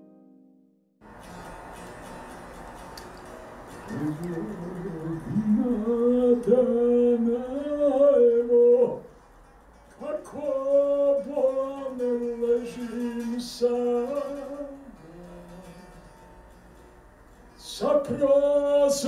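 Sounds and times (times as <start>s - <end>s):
man singing slow song: 3.9s - 9.1s, 10.0s - 16.0s, 17.6s - 19.0s.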